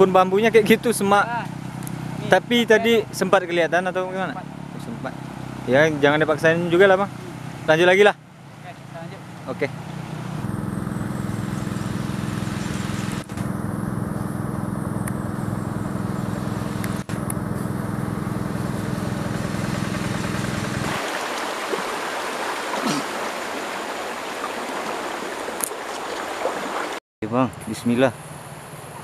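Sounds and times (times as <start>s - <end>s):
steady low hum: 10.1s - 21.0s
shallow stream rushing: 17.9s - 27.0s.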